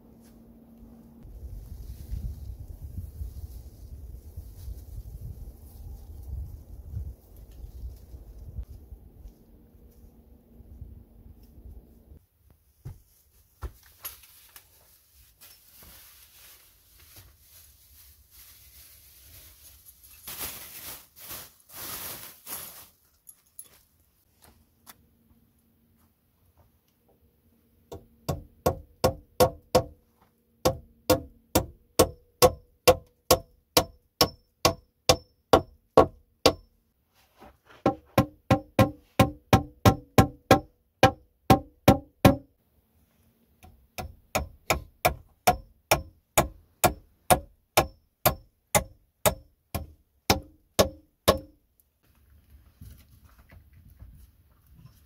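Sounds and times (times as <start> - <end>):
plastic bag rustling: 13.0 - 24.0.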